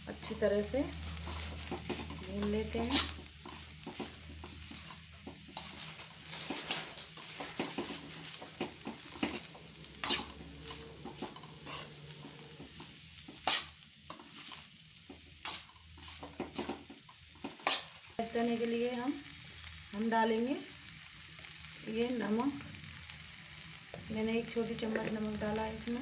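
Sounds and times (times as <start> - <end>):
vegetables sizzling in oil: 0.0 - 26.0
metal spatula scraping pan: 1.1 - 18.0.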